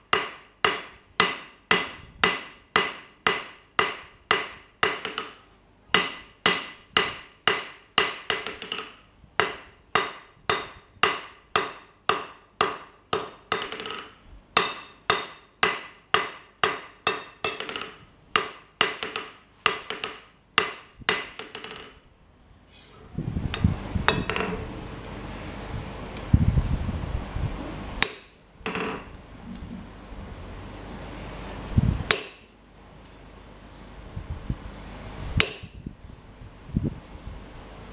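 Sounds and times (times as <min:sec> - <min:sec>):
low rumbling noise: 0:22.0 - 0:37.9.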